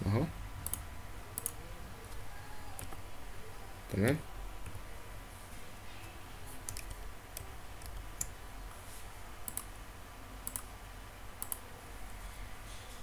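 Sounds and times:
computer mouse clicking: 0.6 - 2.2, 6.6 - 8.4, 9.4 - 9.7, 10.4 - 10.7, 11.4 - 11.6.

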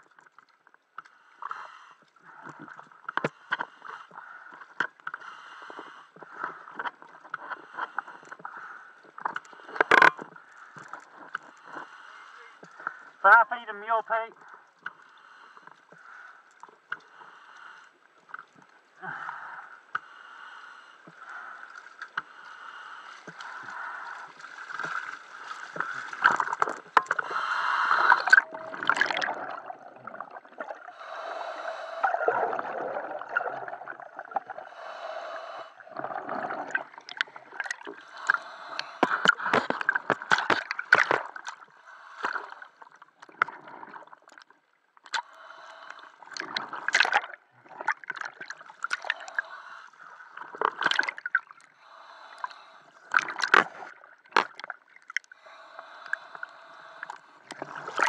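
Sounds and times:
underwater breath bubbling: 19.0 - 44.2, 45.1 - 58.0.

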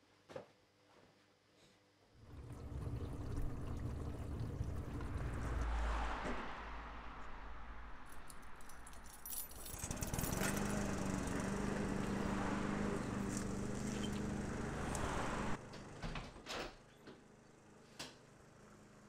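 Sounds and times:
motor hum: 2.2 - 5.6, 9.7 - 16.4
keys jingling: 8.1 - 10.9.

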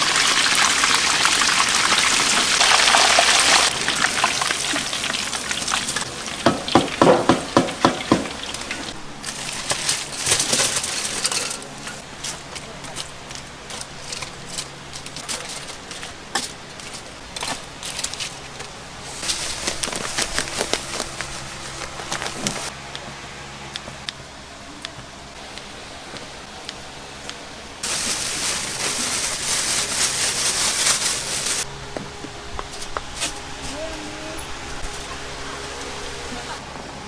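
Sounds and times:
food sizzling in hot oil: 0.0 - 6.7.

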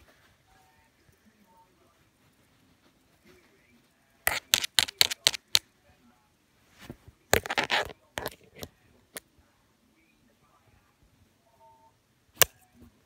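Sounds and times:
handling clicks and knocks: 4.3 - 5.6, 7.4 - 8.7.

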